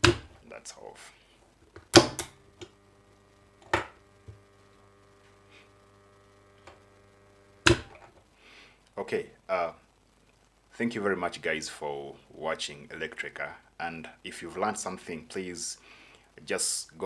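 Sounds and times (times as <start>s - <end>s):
contactor coil humming: 0.0s - 17.0s.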